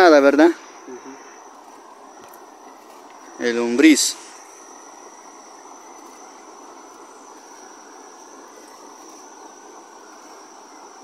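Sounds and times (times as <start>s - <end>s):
high-pitched insect drone: 0.0s - 11.0s
river flowing over stones: 1.4s - 3.4s, 4.2s - 11.0s.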